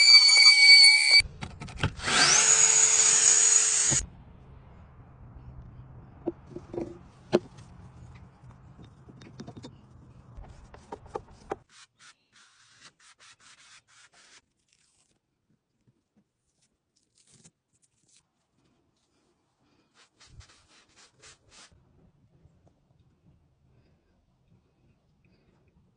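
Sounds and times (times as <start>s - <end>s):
low hum: 3.8s - 11.0s
paintbrush scrubbing on wood: 10.8s - 14.4s, 20.0s - 21.8s.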